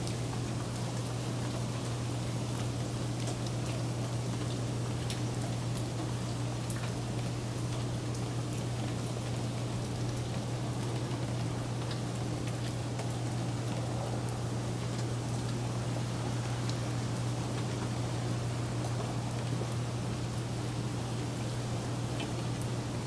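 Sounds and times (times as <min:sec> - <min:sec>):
rain falling: 0:00.0 - 0:23.0.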